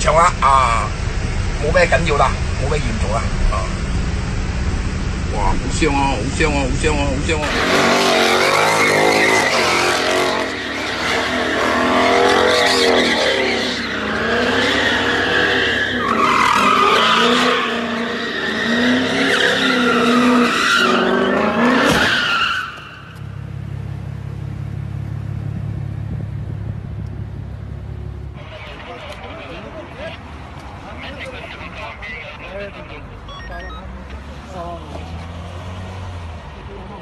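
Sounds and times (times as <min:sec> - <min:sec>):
car engine revving: 0:00.0 - 0:30.2, 0:33.9 - 0:37.0
tyres squealing: 0:07.3 - 0:23.3.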